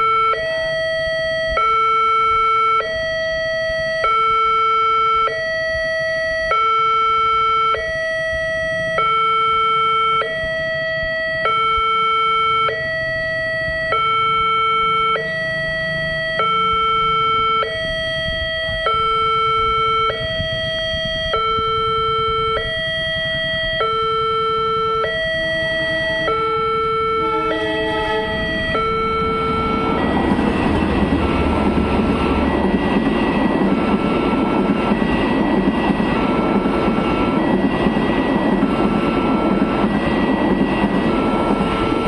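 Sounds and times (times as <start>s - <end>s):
two-tone electronic crossing alarm: 0.0s - 42.0s.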